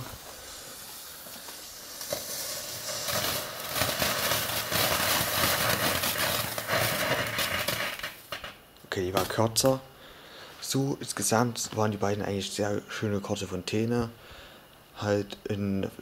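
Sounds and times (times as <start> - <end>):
firework fuse hissing: 0.0 - 9.7
firework fountain crackling hiss: 0.0 - 10.8.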